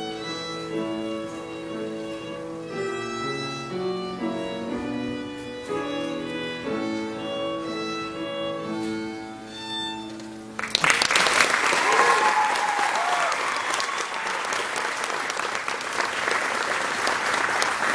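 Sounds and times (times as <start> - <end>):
violin slow melody: 0.0 - 10.6
piano accompaniment: 0.0 - 10.9.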